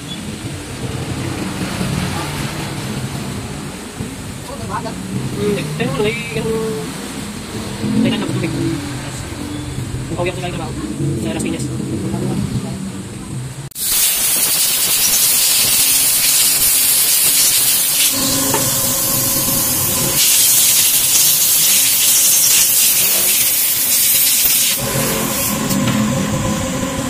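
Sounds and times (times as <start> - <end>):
pressurised jet hissing: 13.7 - 27.0.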